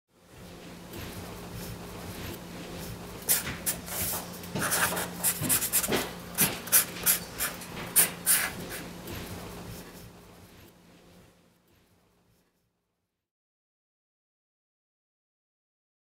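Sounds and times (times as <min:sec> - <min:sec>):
marker scratching and squeaking: 0:03.3 - 0:05.9.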